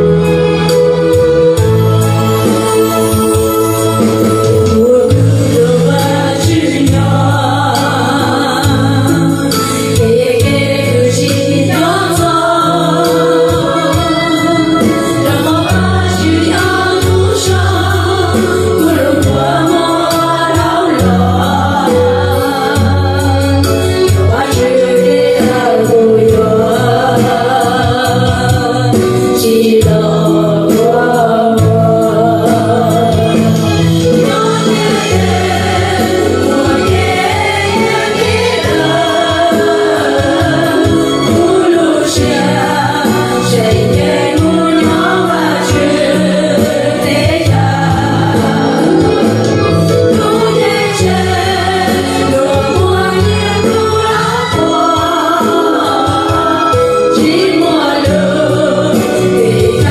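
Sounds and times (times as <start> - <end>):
group singing: 0.0 - 59.9
music with bass notes: 0.0 - 59.9.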